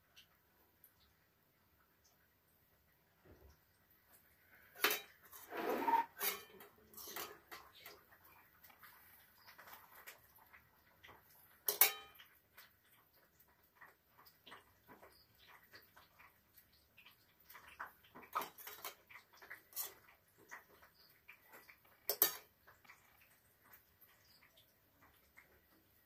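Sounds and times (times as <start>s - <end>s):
metal spoon scraping steel bowl: 4.8s - 7.6s.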